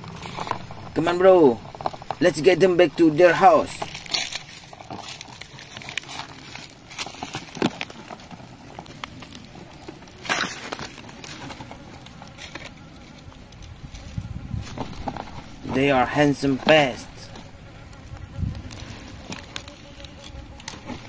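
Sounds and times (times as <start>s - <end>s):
dry leaf litter rustling: 0.0s - 21.0s.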